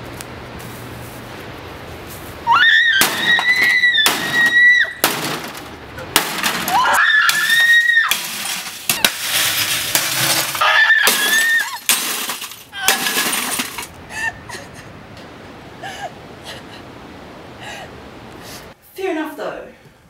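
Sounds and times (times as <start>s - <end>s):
woman screaming: 2.5s - 5.0s, 6.7s - 8.1s, 10.6s - 11.9s, 12.7s - 13.3s
blows cracking plastic casing: 3.0s - 13.9s
glass breaking: 3.0s - 14.0s.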